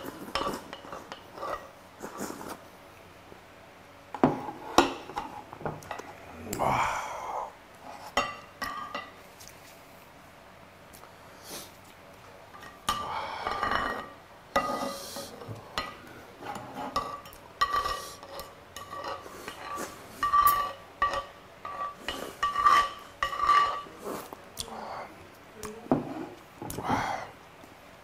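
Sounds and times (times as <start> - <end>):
wooden spoon scraping a plate: 0.0 - 2.6, 12.6 - 24.4, 25.9 - 26.8.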